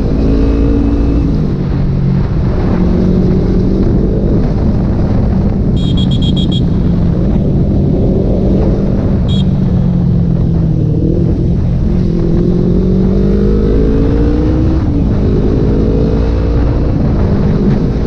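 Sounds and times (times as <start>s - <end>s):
motorcycle engine running: 3.8s - 12.7s.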